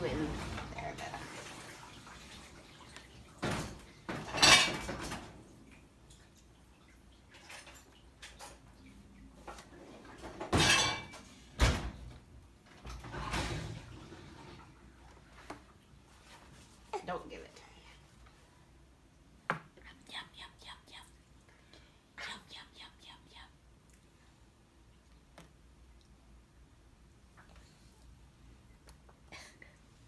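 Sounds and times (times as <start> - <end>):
spoons and dishes clattering: 3.5 - 5.2, 10.5 - 11.3.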